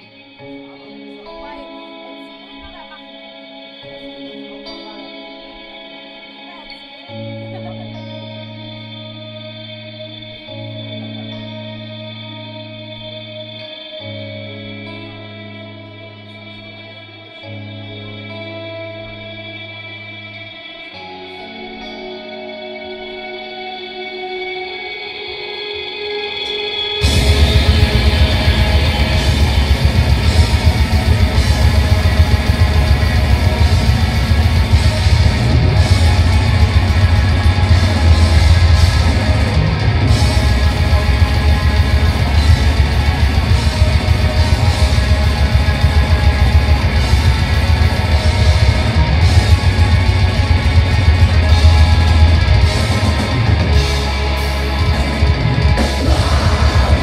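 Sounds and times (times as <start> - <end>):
metal band playing loudly: 25.2 - 57.0.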